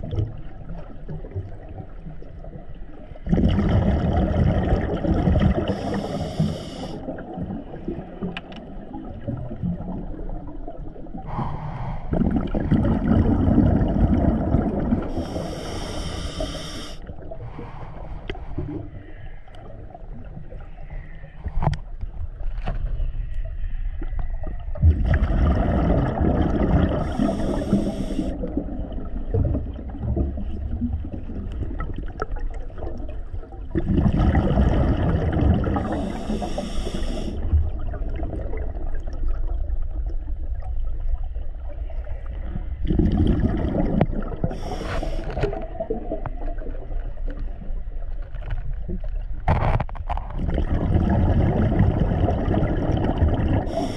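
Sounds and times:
exhaled bubbles gurgling underwater: 0.0s - 53.9s
regulator hiss: 5.8s - 7.0s, 15.2s - 17.0s, 27.1s - 28.4s, 35.9s - 37.4s, 44.6s - 45.3s.

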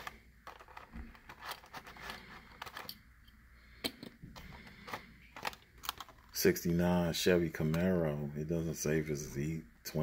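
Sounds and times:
plastic packaging rustling: 0.0s - 3.0s, 4.4s - 6.7s.

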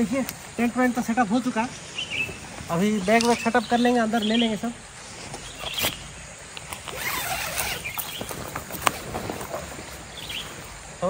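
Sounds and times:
stream rushing: 0.0s - 11.0s
bags rustling: 6.7s - 10.6s.

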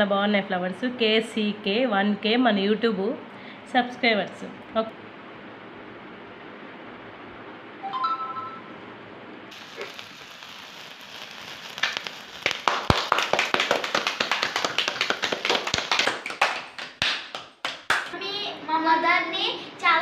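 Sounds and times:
sparkler candle hissing: 9.5s - 16.3s
sparkler crackling pops: 9.5s - 17.3s.

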